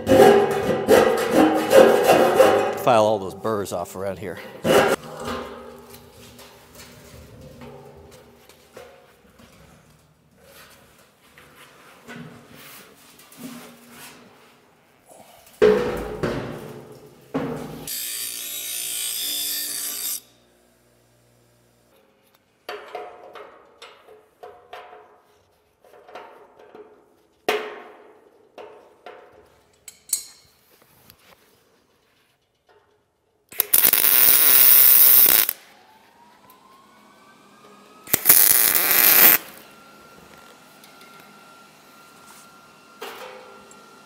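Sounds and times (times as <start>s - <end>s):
welding arc crackling: 33.5s - 35.6s, 38.1s - 39.6s
bench grinder grinding metal: 33.6s - 35.6s, 38.1s - 39.6s.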